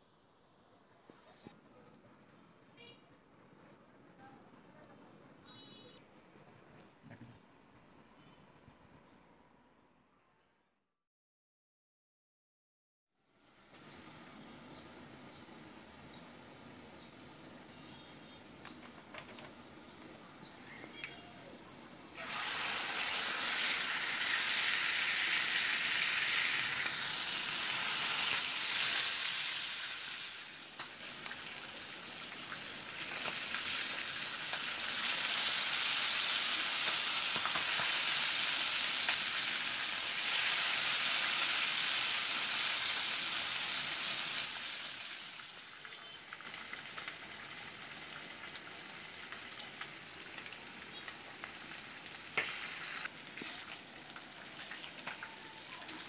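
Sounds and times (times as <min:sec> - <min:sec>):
chicken sizzling in hot oil: 0:22.2 - 0:56.0.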